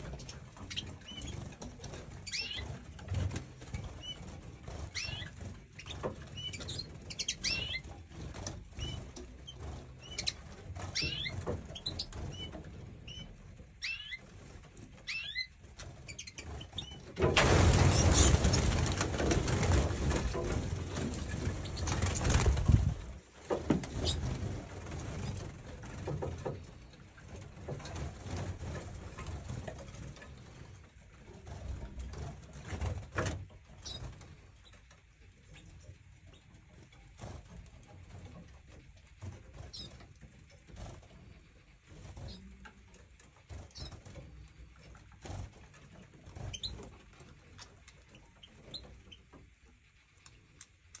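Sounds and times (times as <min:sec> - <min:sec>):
canaries chirping: 0:00.0 - 0:51.0
soft rustles and thumps: 0:16.8 - 0:47.5.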